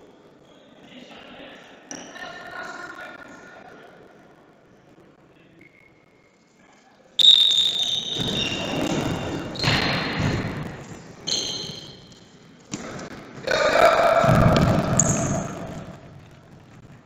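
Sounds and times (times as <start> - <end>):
general hall noise: 0.0 - 17.0
referee's whistle blasts: 7.2 - 8.7.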